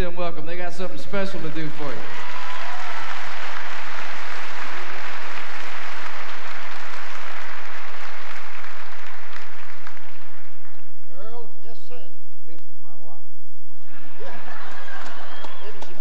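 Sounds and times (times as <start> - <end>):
audience applauding: 1.4 - 10.9, 13.8 - 16.0.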